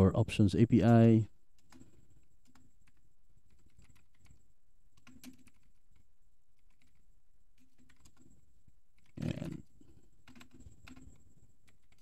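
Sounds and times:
faint keyboard typing: 0.5 - 12.0.

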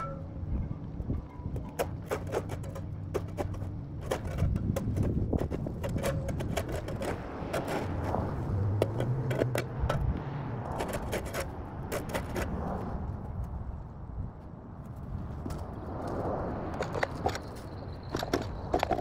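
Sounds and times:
shovel scraping dirt: 1.7 - 13.0.

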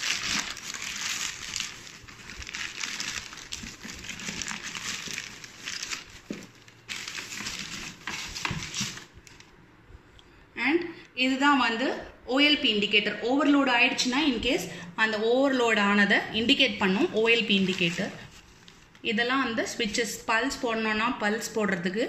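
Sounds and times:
packaging crinkling: 0.0 - 9.6, 17.3 - 19.0.

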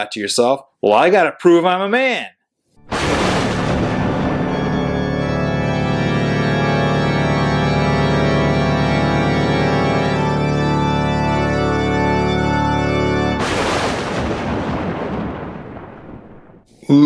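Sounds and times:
sustained organ chords: 2.8 - 13.6.

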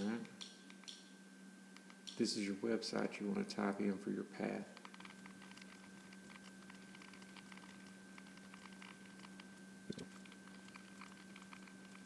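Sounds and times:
remote buttons clicking: 0.3 - 1.1.

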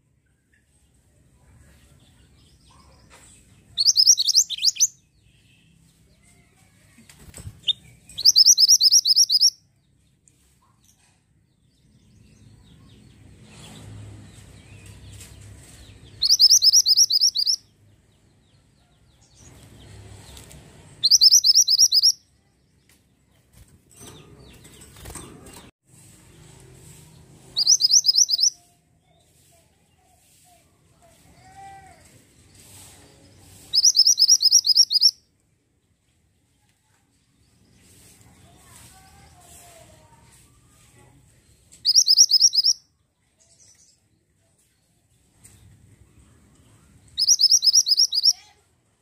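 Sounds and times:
songbird trilling: 3.8 - 5.0, 8.2 - 9.6, 16.2 - 17.6, 21.0 - 22.2, 27.6 - 28.6, 33.8 - 35.2, 41.8 - 42.8, 47.2 - 48.4
bird wings fluttering: 24.6 - 25.7.

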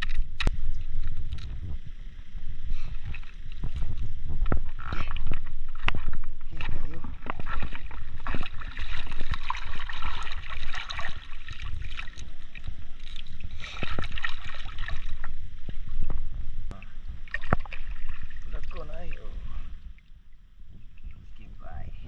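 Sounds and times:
seawater splashing and sloshing: 2.8 - 16.0, 17.1 - 20.1.

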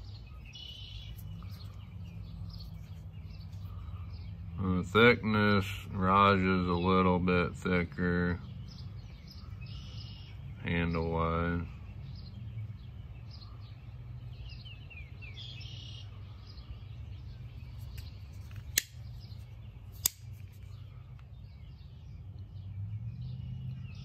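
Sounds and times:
birds chirping faintly: 0.0 - 24.0
knife blades snapping open: 18.0 - 19.0, 20.0 - 20.4.

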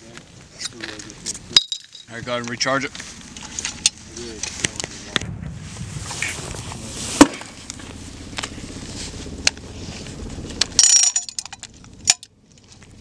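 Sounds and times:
metallic ringing clatter: 1.6 - 2.1, 10.6 - 12.3.

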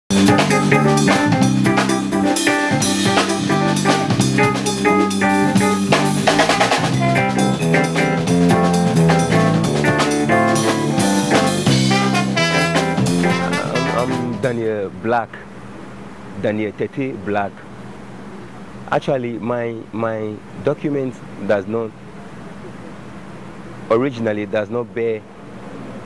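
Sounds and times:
jazz band music: 0.1 - 14.6
busy drum kit: 0.1 - 14.7.

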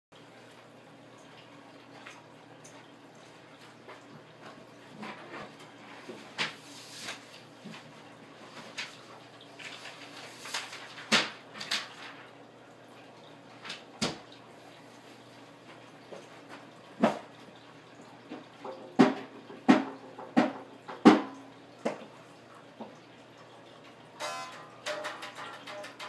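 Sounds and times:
low guitar ringing: 24.2 - 26.0.

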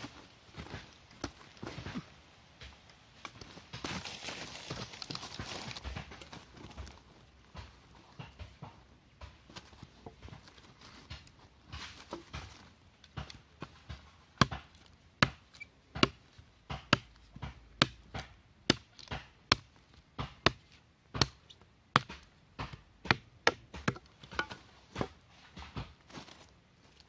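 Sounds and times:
machete chopping wooden stick: 7.5 - 26.0.

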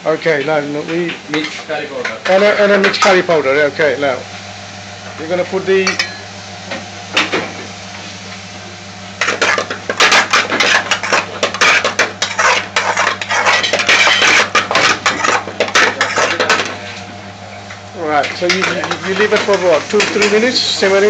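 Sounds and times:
metal spoon scraping frying pan: 9.2 - 16.8, 18.4 - 20.8.

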